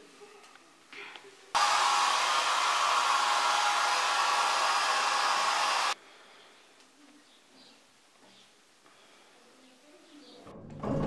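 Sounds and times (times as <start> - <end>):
hair dryer blowing: 1.6 - 6.0.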